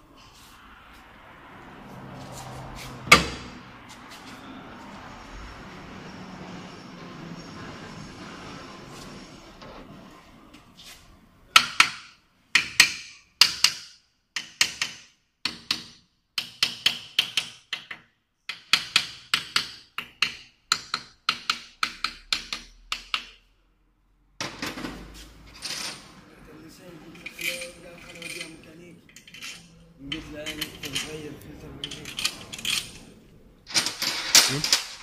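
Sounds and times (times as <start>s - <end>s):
hammer tapping on metal: 12.6s - 23.4s
clatter of parts handled: 33.7s - 35.0s.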